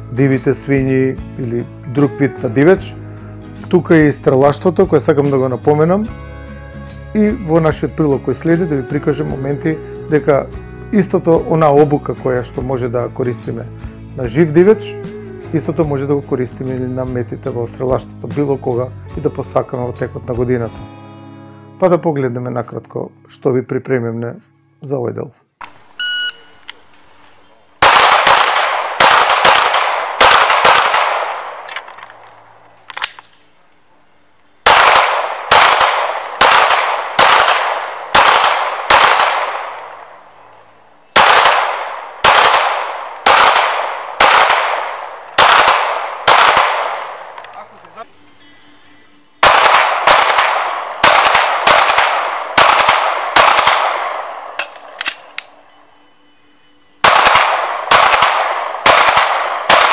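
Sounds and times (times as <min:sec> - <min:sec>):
gunshots with ringing echo: 0:27.8 - 0:32.6, 0:34.6 - 0:47.4, 0:49.4 - 0:55.8, 0:57.0 - 0:59.9.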